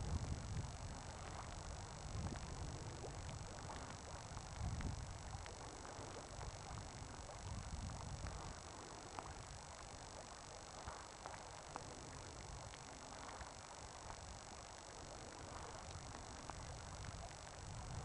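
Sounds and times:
wind buffeting microphone: 0.0 - 9.6, 16.0 - 18.0
faint steady hiss: 0.0 - 18.0.

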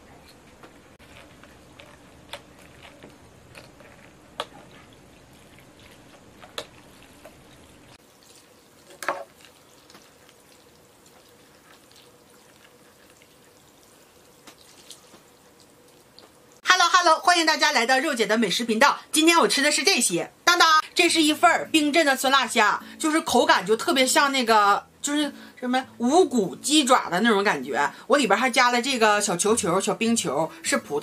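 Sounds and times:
wet sounds of noodles: 0.9 - 16.6.

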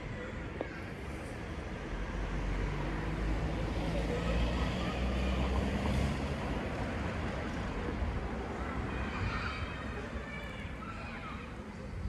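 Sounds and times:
passing vehicle engine rumble: 1.3 - 9.0.

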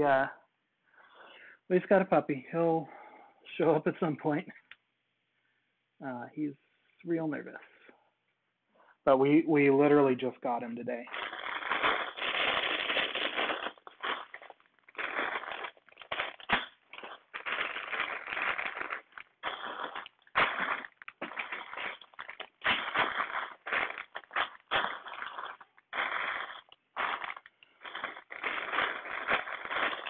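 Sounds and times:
plastic bags crinkling: 11.1 - 30.0.

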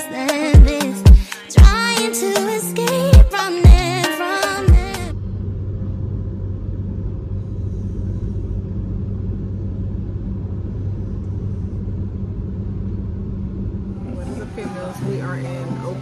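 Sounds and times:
car road and engine rumble: 4.8 - 16.0.

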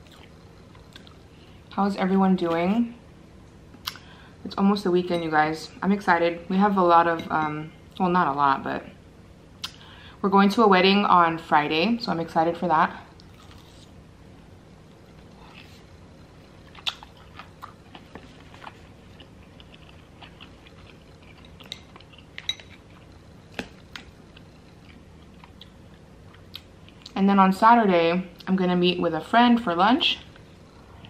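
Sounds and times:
person chewing food: 0.0 - 1.3, 13.2 - 14.0, 15.1 - 27.2
sharp mouth clicks: 3.8 - 4.0.

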